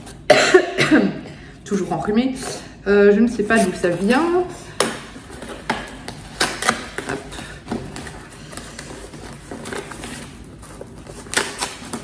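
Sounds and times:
cardboard packaging crackling: 3.4s - 12.0s.

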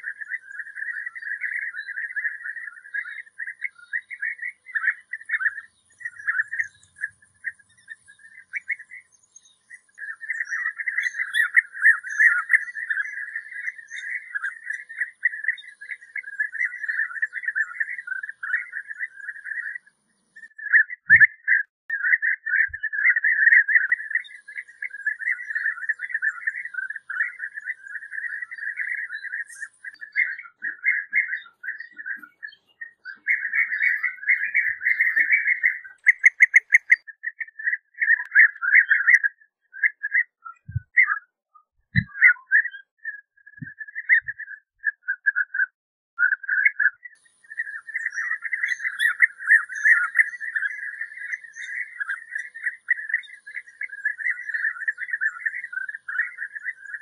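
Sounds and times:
bird calling in trilling notes: 20.4s - 41.3s, 41.9s - 45.6s, 46.2s - 57.0s.

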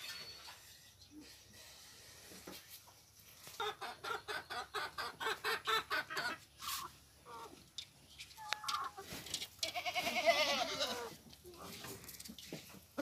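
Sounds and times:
chickens clucking: 2.4s - 13.0s.

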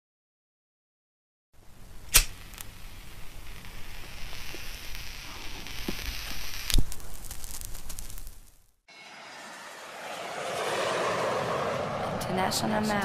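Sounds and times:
scattered crackles: 2.1s - 8.8s
hissing crackling rush: 2.2s - 12.6s
sharp impact hit: 8.9s - 12.5s.

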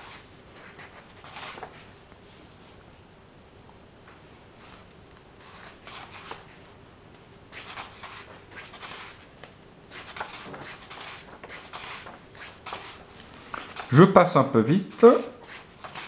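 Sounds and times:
book pages turning: 0.0s - 2.8s, 4.6s - 6.6s, 7.5s - 14.0s, 14.9s - 16.0s.

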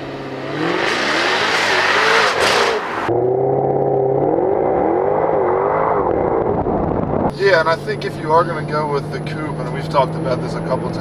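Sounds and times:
sports car engine accelerating: 0.0s - 11.0s.

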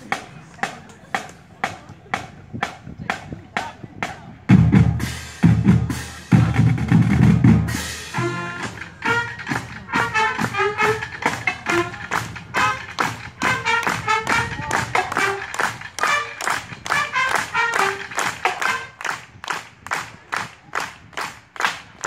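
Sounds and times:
marching band playing: 0.0s - 20.1s
horns: 3.6s - 20.1s.

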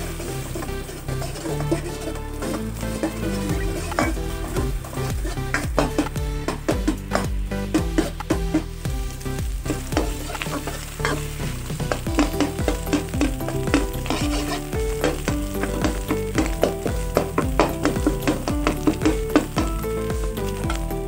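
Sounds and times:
metal spatula scraping wok: 0.0s - 7.3s, 9.7s - 19.6s
frying sizzle: 0.0s - 21.0s.

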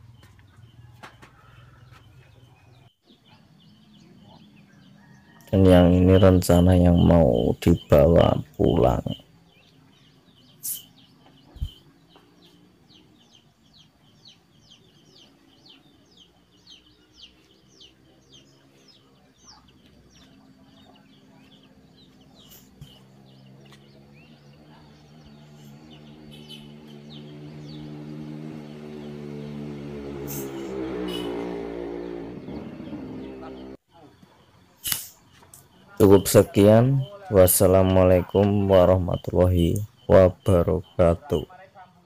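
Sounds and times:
steady engine hum: 0.0s - 41.4s
small birds chirping: 0.0s - 42.0s.

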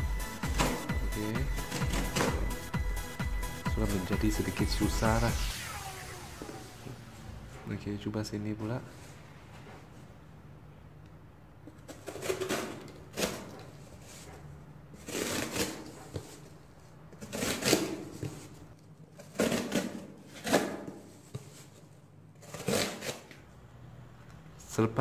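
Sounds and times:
knife scraping through cardboard: 11.9s - 14.4s, 15.0s - 16.5s, 17.2s - 18.5s, 19.2s - 21.2s, 22.4s - 23.4s.

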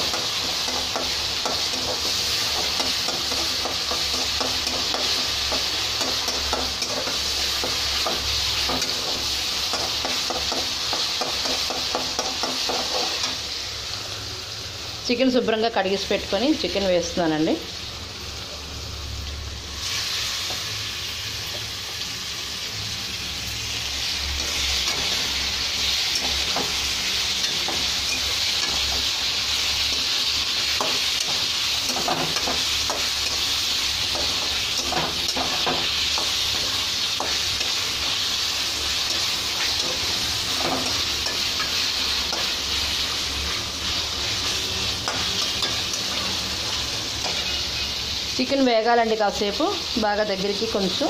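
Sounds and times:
chicken sizzling in oil: 0.0s - 51.0s
spatula scraping pan: 24.4s - 48.0s.

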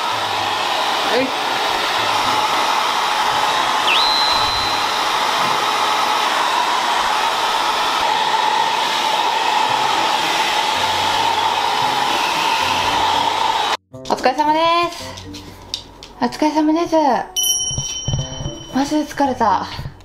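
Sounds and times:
hair dryer running: 0.0s - 13.8s.

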